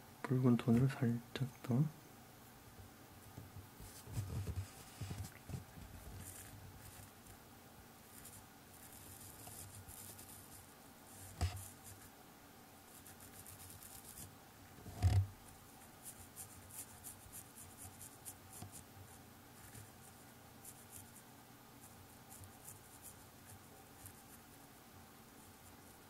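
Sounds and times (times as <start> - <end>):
brush stroking on paper: 3.8 - 7.4, 8.1 - 12.1, 12.9 - 14.3, 15.6 - 21.2, 21.8 - 24.6.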